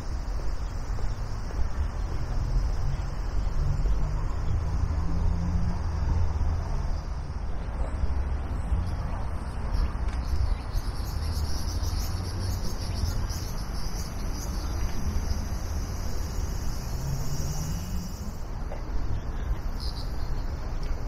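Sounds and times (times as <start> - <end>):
insects buzzing: 10.0 - 21.0.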